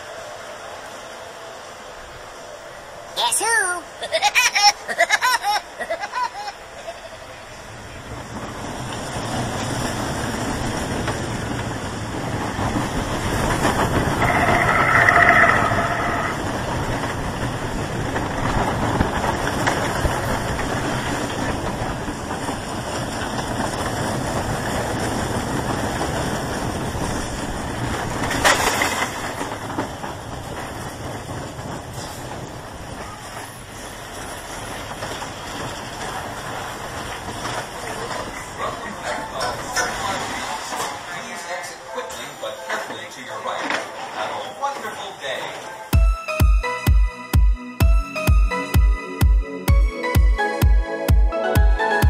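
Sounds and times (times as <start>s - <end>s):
roller coaster wheels rumbling on rail: 0.0s - 46.4s
high-pitched tone: 14.2s - 16.5s.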